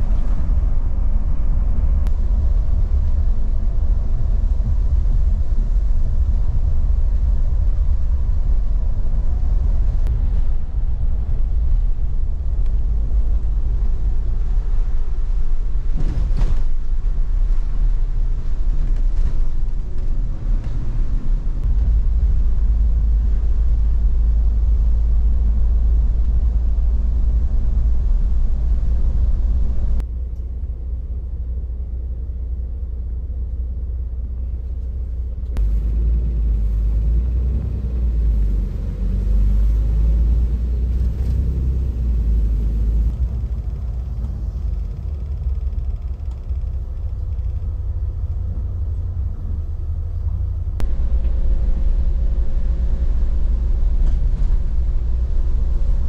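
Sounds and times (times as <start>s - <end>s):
low engine and road rumble: 0.0s - 56.0s
tyres hissing on wet road: 35.6s - 43.1s.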